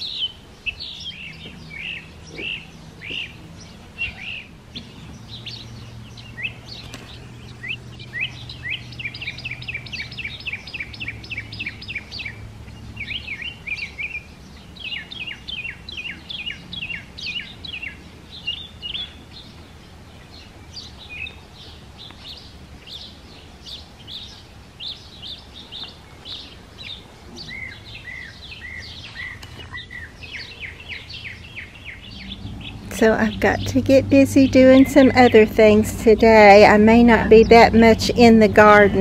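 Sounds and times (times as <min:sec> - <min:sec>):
songbirds chirping: 0:00.0 - 0:39.0
lower chirping series: 0:27.4 - 0:38.9.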